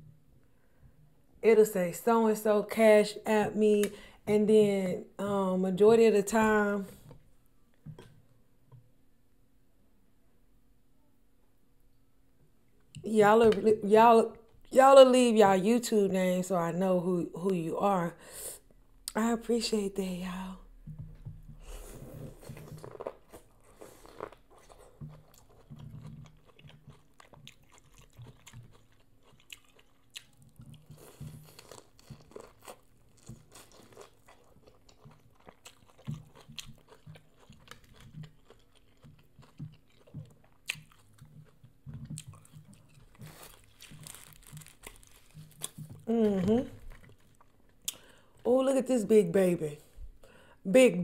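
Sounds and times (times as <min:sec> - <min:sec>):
chewing corn on the cob: 0:22.0 - 0:46.1.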